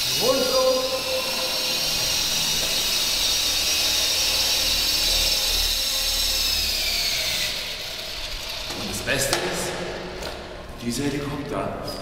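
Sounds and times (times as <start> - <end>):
toy helicopter rotor whine: 0.0 - 9.0.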